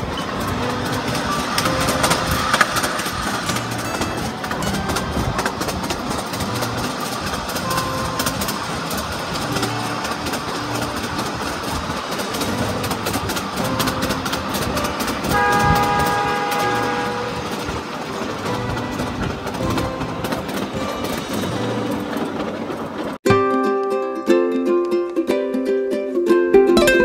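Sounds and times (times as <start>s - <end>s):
miniature train rumbling on track: 0.0s - 23.2s
train horn: 13.7s - 19.8s.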